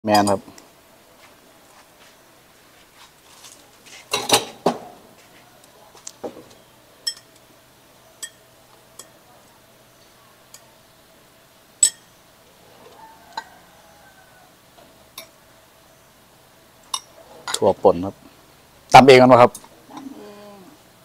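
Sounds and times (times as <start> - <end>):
metal spoons clinking on ceramic bowls: 7.0 - 7.4, 8.2 - 9.2, 11.8 - 12.1.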